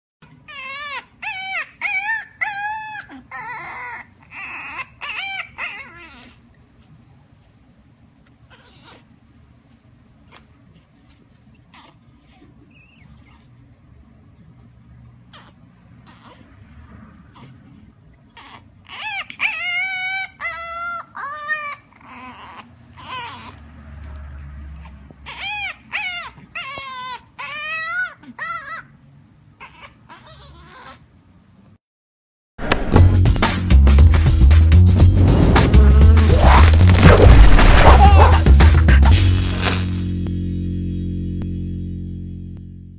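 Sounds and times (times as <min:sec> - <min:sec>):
puppy whining: 0:00.2 - 0:07.6, 0:08.2 - 0:09.2, 0:10.2 - 0:13.8, 0:15.3 - 0:23.7, 0:24.7 - 0:29.0, 0:29.6 - 0:31.8, 0:36.3 - 0:38.5.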